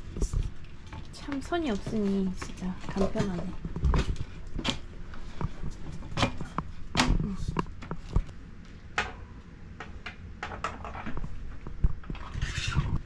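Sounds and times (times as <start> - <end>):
bicycle parts clicking and knocking: 9.8 - 12.2.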